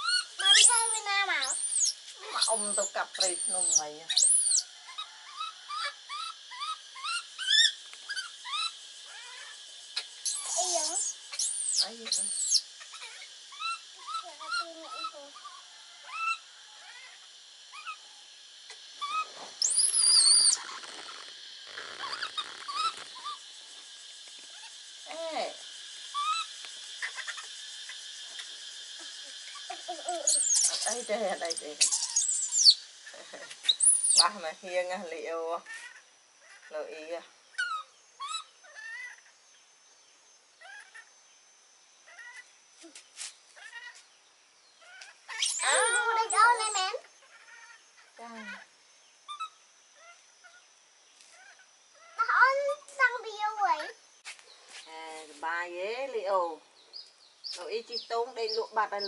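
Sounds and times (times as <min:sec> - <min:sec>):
monkey shrill squeal: 0:00.0 - 0:09.6, 0:10.2 - 0:18.0, 0:19.0 - 0:20.8, 0:21.8 - 0:23.4, 0:26.2 - 0:27.5, 0:29.5 - 0:31.2, 0:31.8 - 0:32.8, 0:33.7 - 0:34.3, 0:44.9 - 0:47.8, 0:49.3 - 0:50.2
baby monkeys squeaking: 0:00.0 - 0:18.0, 0:19.0 - 0:23.5, 0:24.4 - 0:25.5, 0:26.1 - 0:34.5, 0:35.3 - 0:39.4, 0:40.6 - 0:41.1, 0:42.0 - 0:43.0, 0:43.6 - 0:44.0, 0:44.8 - 0:50.6, 0:51.3 - 0:52.6, 0:57.0 - 0:59.0.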